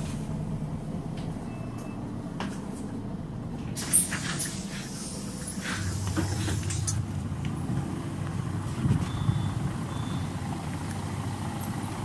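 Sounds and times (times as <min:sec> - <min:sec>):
diesel bus engine idling: 0:00.0 - 0:12.0
short faint high beeps: 0:09.0 - 0:10.3.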